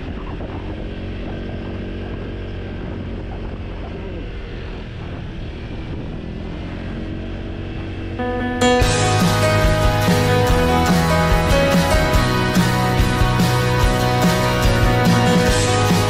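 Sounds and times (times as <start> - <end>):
wind noise: 0.0 - 4.3, 4.9 - 6.5
motor scooter engine hum: 0.0 - 16.0
music: 8.2 - 16.0.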